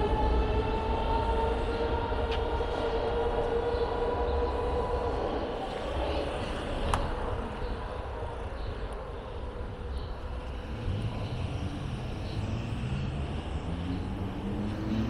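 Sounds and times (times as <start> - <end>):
street traffic rumble: 0.0 - 15.0
vehicle engine: 9.7 - 15.0.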